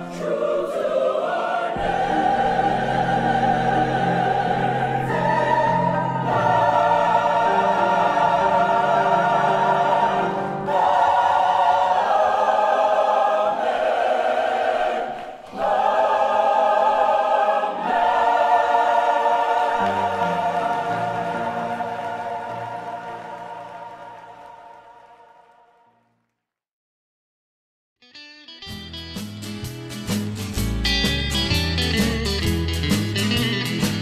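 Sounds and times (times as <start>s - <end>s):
choir singing held chords: 0.0s - 26.0s.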